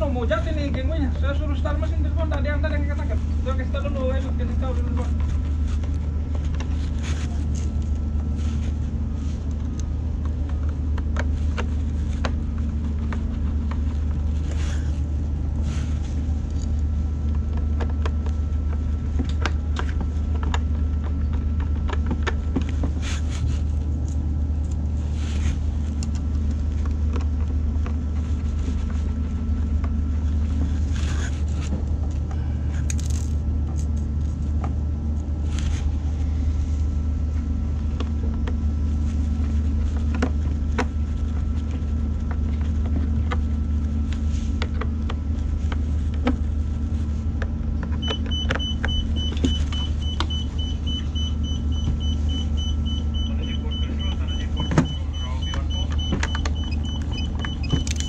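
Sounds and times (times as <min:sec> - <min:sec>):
low machinery hum: 0:00.0 - 0:58.0.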